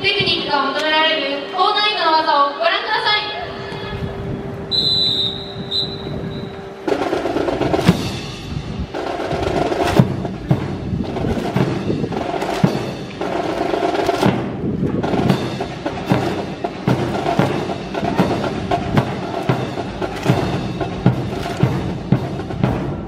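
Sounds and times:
percussive music with drum beat: 6.9 - 23.0.

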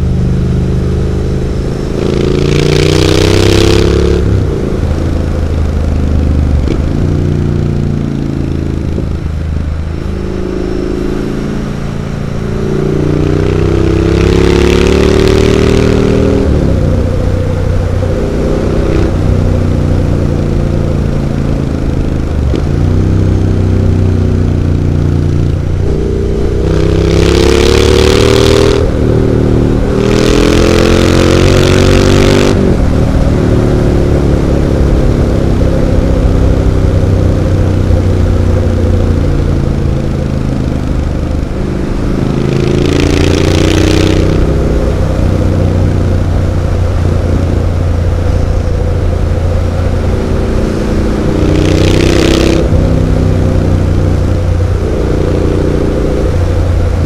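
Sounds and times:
motorcycle engine accelerating: 0.0 - 57.0
loud rushing noise: 41.4 - 57.0.

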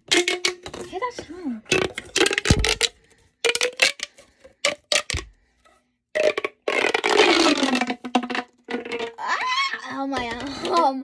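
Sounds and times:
plastic pop tube popping: 0.0 - 1.0, 1.7 - 5.4, 6.2 - 9.4.

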